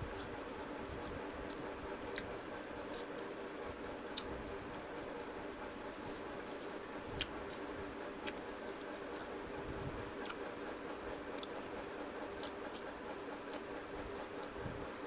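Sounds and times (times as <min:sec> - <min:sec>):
food being chewed: 0:00.0 - 0:03.5, 0:04.1 - 0:14.8
background hum: 0:00.0 - 0:15.0
wet squishes of food: 0:04.1 - 0:09.5.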